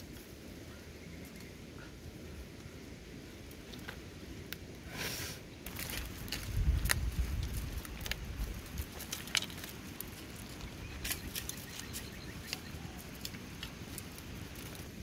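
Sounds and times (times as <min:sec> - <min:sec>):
puppies rustling in wicker basket: 0:05.7 - 0:15.0.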